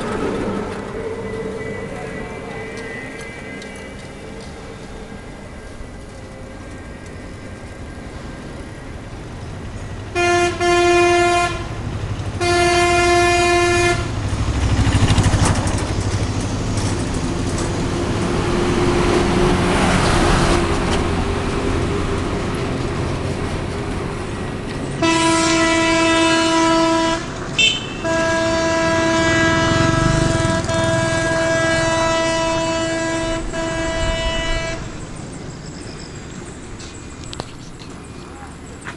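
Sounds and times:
vehicle horn blasts: 0:10.1 - 0:11.7, 0:12.4 - 0:14.1, 0:25.0 - 0:34.9
vehicle passing by: 0:14.1 - 0:23.3, 0:29.4 - 0:31.8.

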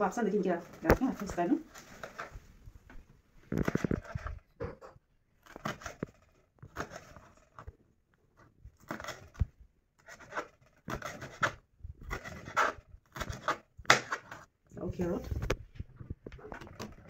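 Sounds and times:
knife slicing chillies on plastic board: 0:05.4 - 0:06.1, 0:06.7 - 0:07.3, 0:08.8 - 0:14.5.

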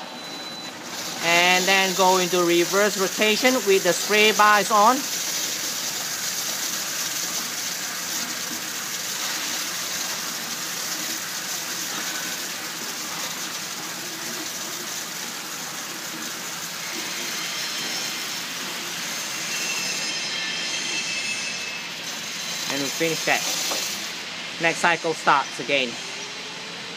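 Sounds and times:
water spray hissing: 0:00.9 - 0:20.0, 0:21.8 - 0:24.3.

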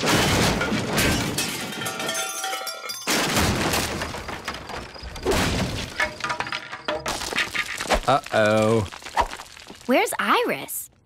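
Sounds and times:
cartoon crashing and breaking: 0:00.0 - 0:02.2, 0:03.0 - 0:09.9
tinkling: 0:01.4 - 0:03.2.

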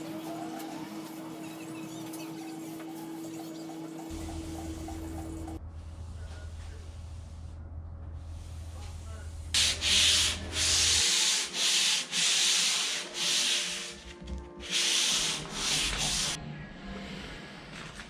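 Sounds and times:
sanding sponge scratching wood: 0:09.6 - 0:14.0, 0:14.6 - 0:16.4.

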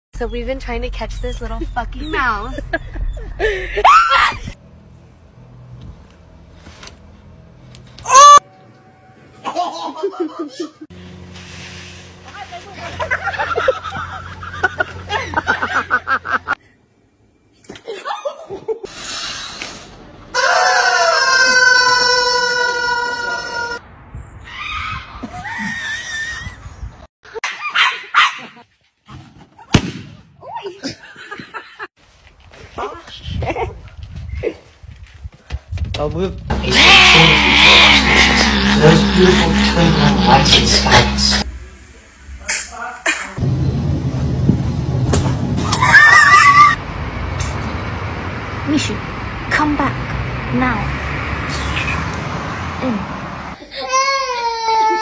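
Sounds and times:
person laughing: 0:01.6 - 0:04.5, 0:09.4 - 0:10.9, 0:13.0 - 0:16.6, 0:36.7 - 0:41.4
woman screaming: 0:03.8 - 0:04.6, 0:08.1 - 0:08.4, 0:45.7 - 0:46.8
hen squawking: 0:36.5 - 0:41.4.

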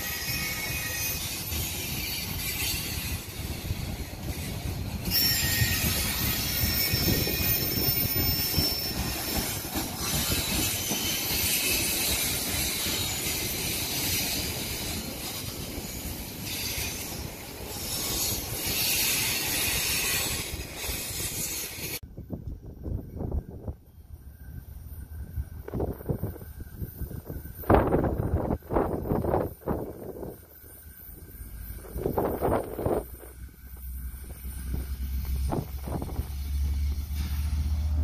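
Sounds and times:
high wheel squeal: 0:00.0 - 0:22.0
freight train wheels on rails: 0:00.0 - 0:38.0.

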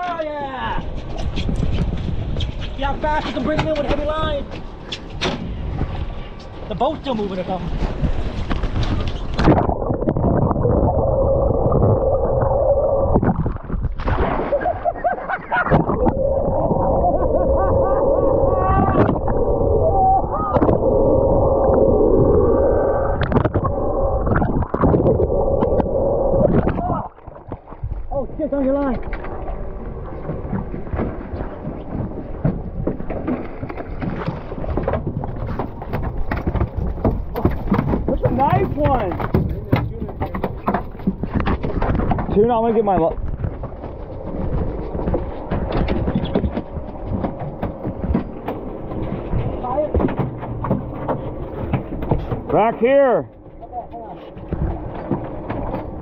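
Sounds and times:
water splashing around boat: 0:00.0 - 0:56.0
wind: 0:00.0 - 0:56.0.

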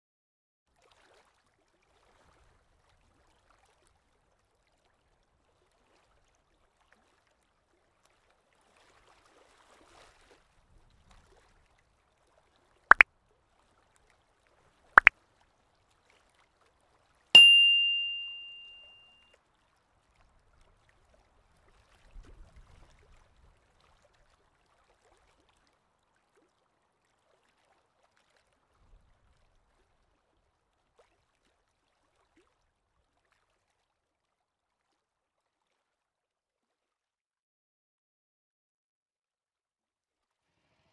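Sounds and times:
high bell-like ding: 0:17.4 - 0:19.2.

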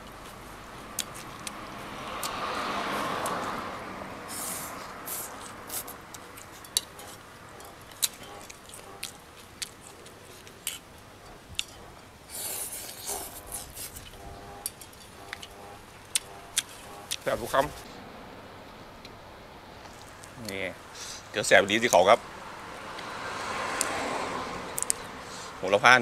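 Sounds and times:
wet chewing clicks and smacks: 0:01.0 - 0:01.6, 0:05.2 - 0:12.0, 0:24.8 - 0:25.0.

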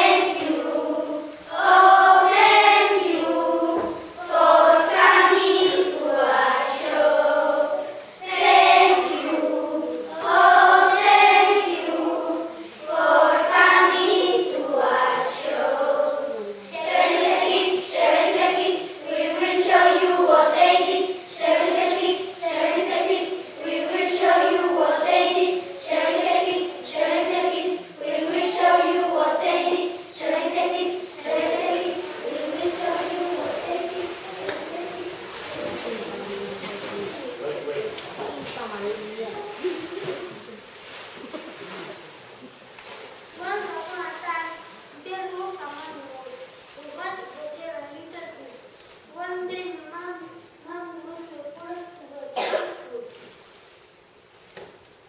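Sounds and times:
children singing in unison: 0:00.0 - 0:37.8.

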